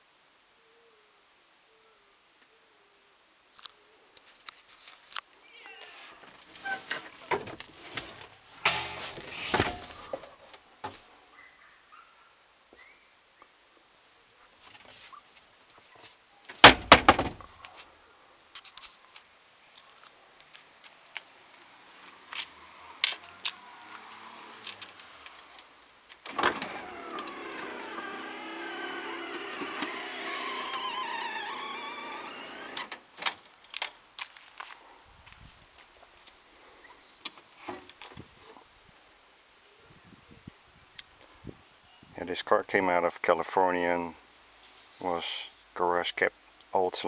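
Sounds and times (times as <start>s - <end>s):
electric tailgate motor whine: 8.6s - 10.0s, 26.2s - 33.1s
car door shutting: 26.2s - 33.0s.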